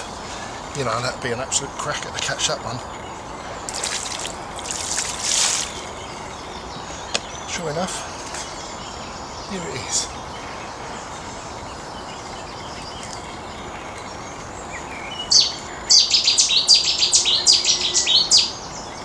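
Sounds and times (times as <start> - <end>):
outdoor background hiss: 0.0 - 19.0
songbird chirping: 0.0 - 19.0.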